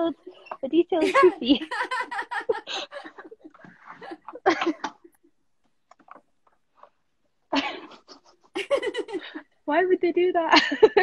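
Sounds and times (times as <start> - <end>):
women laughing: 1.0 - 5.2, 7.5 - 9.4.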